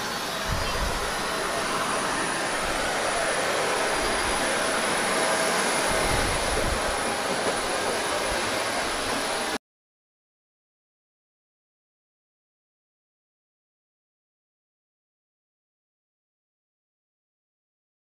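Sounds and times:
jet engines running: 0.0s - 9.6s.

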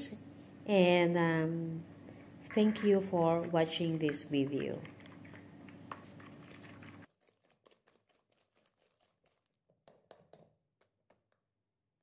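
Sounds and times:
wire whisk beating dough in metal bowl: 2.5s - 9.4s.

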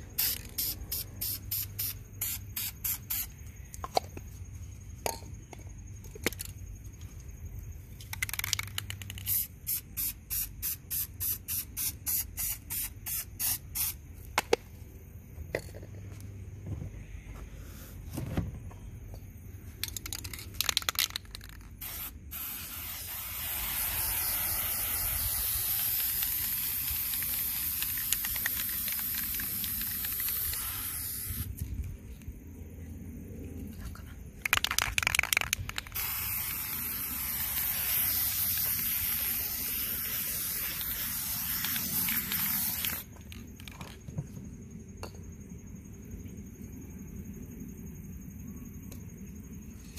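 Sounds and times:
spray can spraying: 0.1s - 3.4s, 8.1s - 14.0s, 20.2s - 31.5s, 34.6s - 43.1s.

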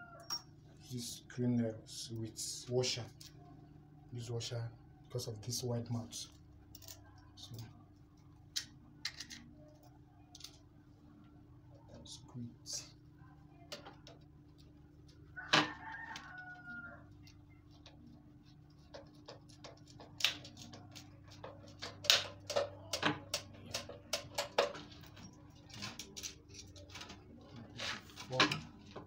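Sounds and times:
screwdriver clicking and scraping: 17.2s - 27.2s.

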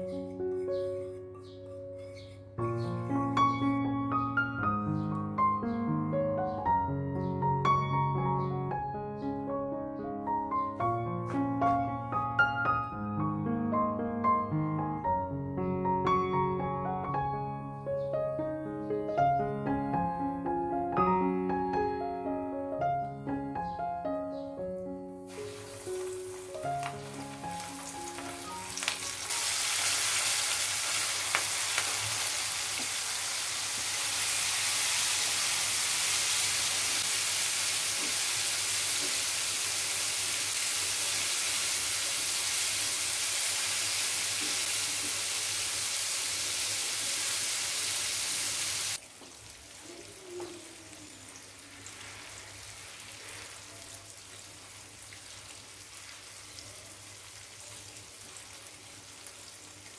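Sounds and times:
shrimp sizzling in hot oil: 25.3s - 49.9s, 51.3s - 59.9s.

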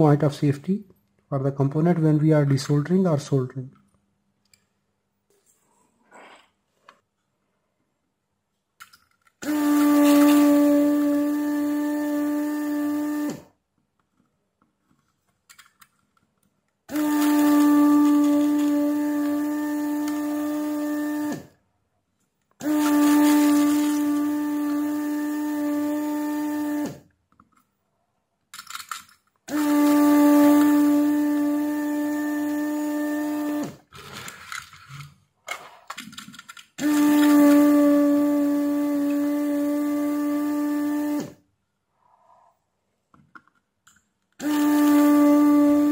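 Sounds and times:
vacuum pump humming and winding down: 9.4s - 13.5s, 16.9s - 21.5s, 22.6s - 27.0s, 29.5s - 33.8s, 36.8s - 41.4s.

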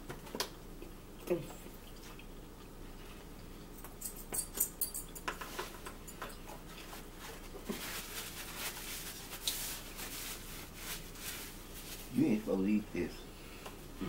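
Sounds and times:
paper napkin rustling: 6.8s - 12.6s.

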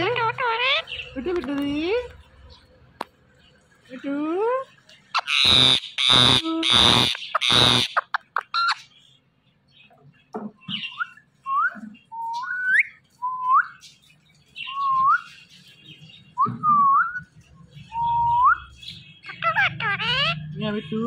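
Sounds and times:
parakeet chirps and clicks: 0.0s - 3.2s, 4.7s - 8.9s.

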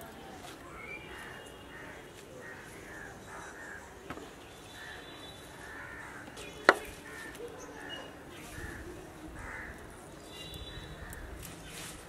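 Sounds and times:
crows cawing: 1.1s - 4.2s, 4.8s - 7.9s, 8.5s - 9.9s.

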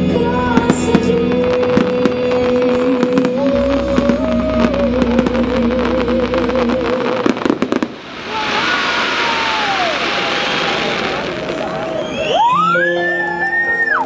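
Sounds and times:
fireworks cracks and bangs: 0.5s - 12.7s
crowd applause: 8.3s - 14.0s
crowd whistles: 9.2s - 14.0s.

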